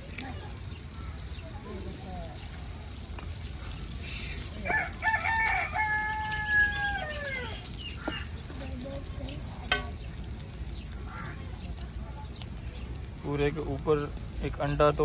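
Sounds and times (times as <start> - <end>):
rooster crowing: 4.6 - 7.7.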